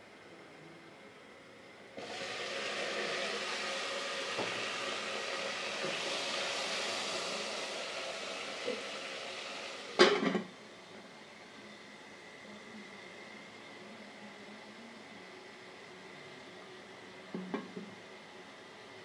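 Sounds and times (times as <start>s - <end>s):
meat sizzling in a pot: 2.0s - 10.6s
metal lid clattering on pot: 10.0s - 10.5s.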